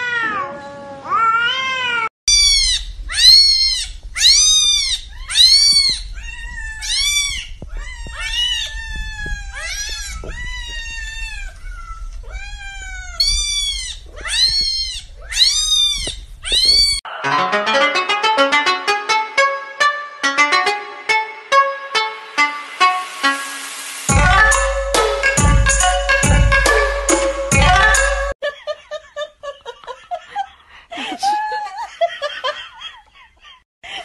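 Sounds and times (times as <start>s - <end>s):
cat yowling: 0.0s - 17.0s
kitten meowing: 0.0s - 17.0s
plucked-string music: 17.1s - 23.4s, 24.1s - 28.3s.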